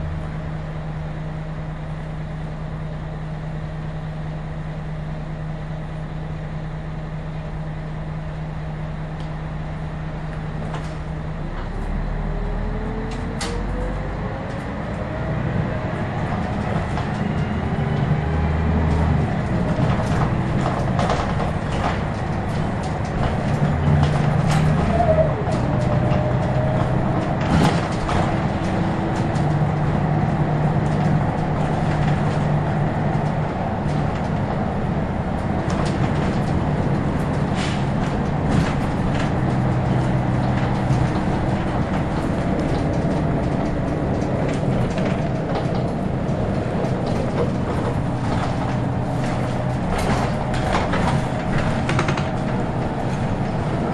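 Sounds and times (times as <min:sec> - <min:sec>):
bus diesel engine driving: 0:00.0 - 0:53.9
bus body clicks and rattles: 0:10.2 - 0:12.0, 0:12.6 - 0:53.9.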